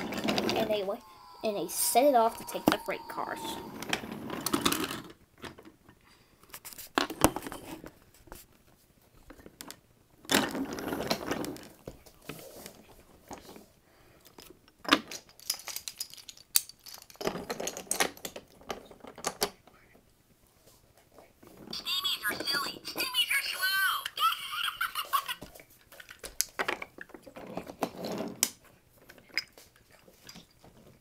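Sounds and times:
wooden toy trains clacking on track: 0:14.9 - 0:19.6.

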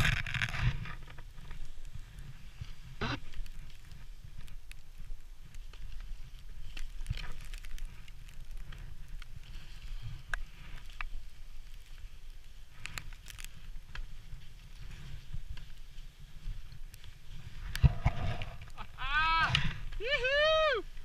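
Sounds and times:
clicks and scrapes of gear: 0:00.0 - 0:01.7, 0:05.7 - 0:15.8
wind rumbling on microphone: 0:00.0 - 0:21.0.

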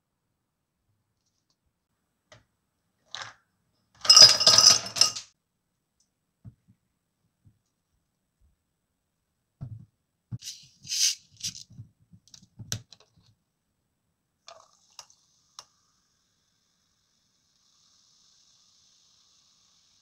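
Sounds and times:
gas hissing from bottle: 0:10.4 - 0:11.2
cola fizzing: 0:14.5 - 0:15.6
cola pouring over ice: 0:14.5 - 0:15.6.

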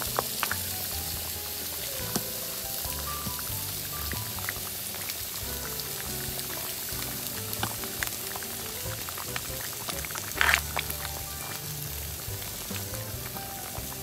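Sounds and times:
soft background music: 0:00.0 - 0:14.0
soup simmering and bubbling: 0:00.0 - 0:14.0.

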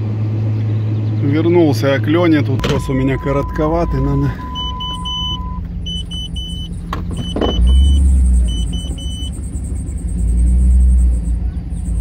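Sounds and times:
low engine rumble: 0:00.0 - 0:12.0
electronic warning chime beeping: 0:02.6 - 0:09.4.

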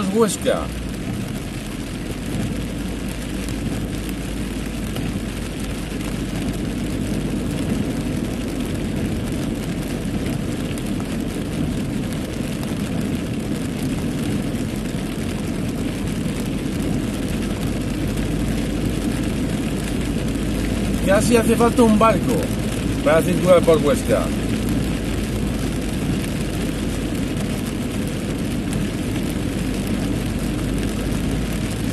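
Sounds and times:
heavy rain on car: 0:00.0 - 0:31.9.

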